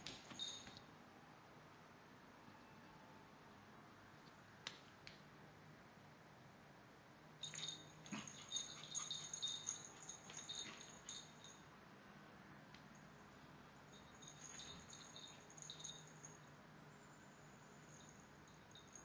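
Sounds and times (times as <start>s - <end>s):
dog collar tags jingling: 7.4s - 11.6s, 13.9s - 16.5s.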